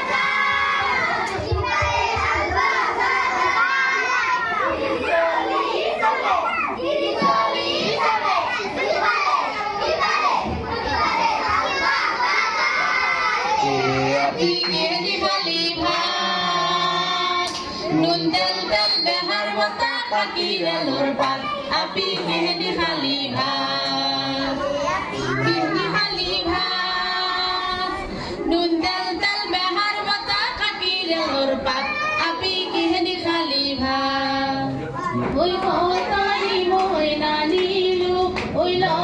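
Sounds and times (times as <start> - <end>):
children singing: 0.0 - 39.0
woman singing: 14.0 - 39.0.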